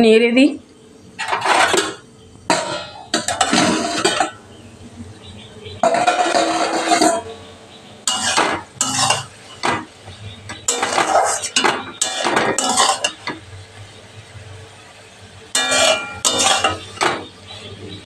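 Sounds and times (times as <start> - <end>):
metal spatula scraping a metal pan: 1.2 - 4.4, 5.8 - 7.4, 8.0 - 13.5, 15.5 - 17.7.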